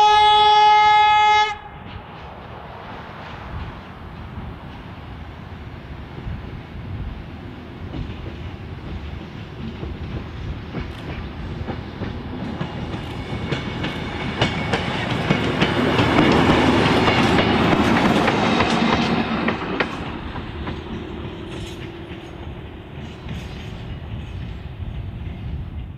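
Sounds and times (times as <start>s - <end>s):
rail motor passing: 0.0s - 25.9s
wheels clicking over rail joints: 7.8s - 25.9s.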